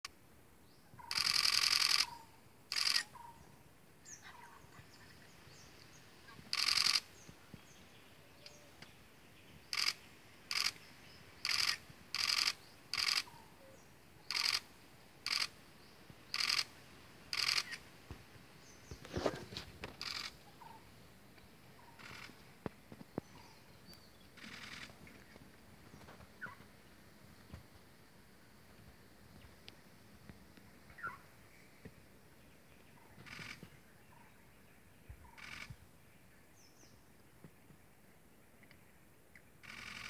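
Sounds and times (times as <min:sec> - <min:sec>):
camera shutter bursts: 0:01.0 - 0:03.2, 0:06.5 - 0:07.1, 0:09.7 - 0:10.8, 0:11.4 - 0:13.4, 0:14.3 - 0:14.7, 0:15.3 - 0:15.6, 0:16.3 - 0:16.7, 0:17.3 - 0:17.8, 0:20.0 - 0:20.4, 0:39.6 - 0:40.0.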